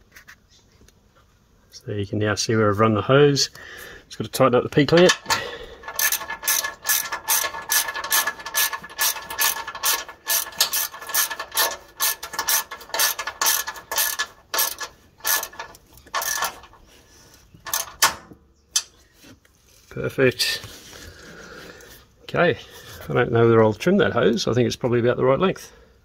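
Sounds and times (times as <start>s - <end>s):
ratchet clicking: 4.9s - 16.8s, 17.6s - 18.2s.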